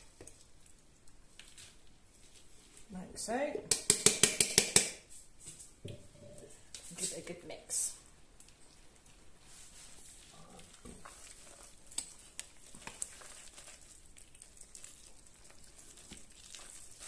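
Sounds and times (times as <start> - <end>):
spoon stirring sticky mixture: 8.4 - 17.0.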